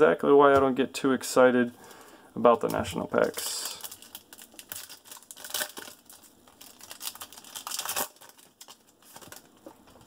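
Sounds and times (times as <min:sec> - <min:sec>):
foil wrapper tearing and crinkling: 0:03.2 - 0:10.0.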